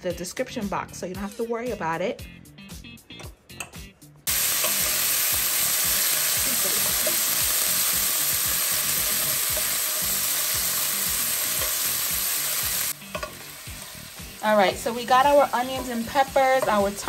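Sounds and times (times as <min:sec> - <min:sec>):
seasoning sizzling in hot oil: 0:04.3 - 0:17.0.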